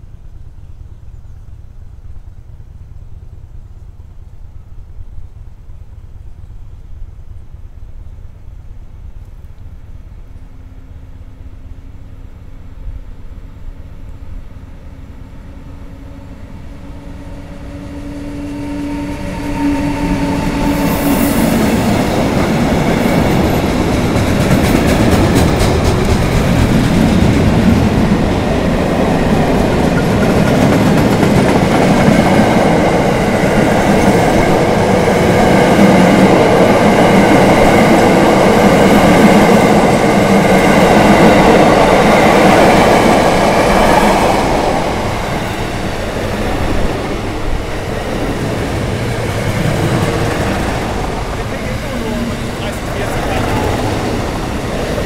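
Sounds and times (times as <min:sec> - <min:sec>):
electric locomotive passing: 0:00.0 - 0:55.0
train wheels rolling on rails: 0:13.5 - 0:55.0.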